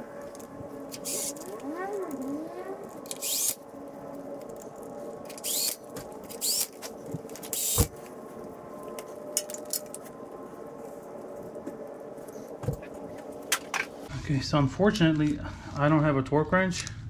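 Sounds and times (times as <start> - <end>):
cordless drill driving bolts: 1.0 - 1.3, 3.1 - 3.6, 5.4 - 6.7, 7.5 - 7.9.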